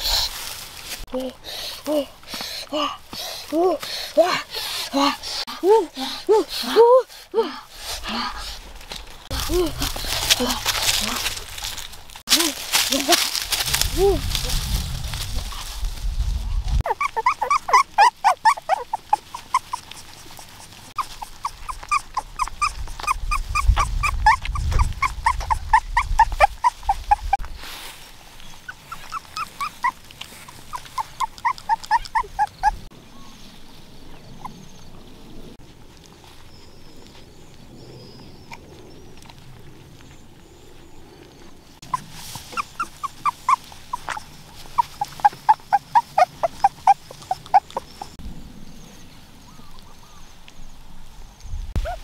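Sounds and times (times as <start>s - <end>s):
puppies whimpering and squeaking: 16.8s - 27.4s, 28.6s - 33.3s, 41.8s - 48.2s, 51.8s - 52.0s.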